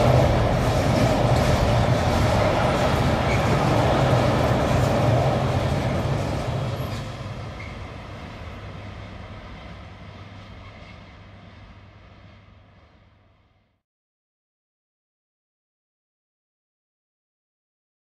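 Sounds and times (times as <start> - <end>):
freight train rumbling: 0.0 - 13.7.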